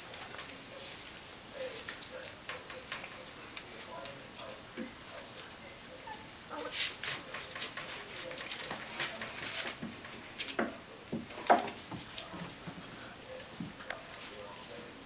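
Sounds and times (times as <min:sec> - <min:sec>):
puppies whimpering: 0:06.0 - 0:06.8.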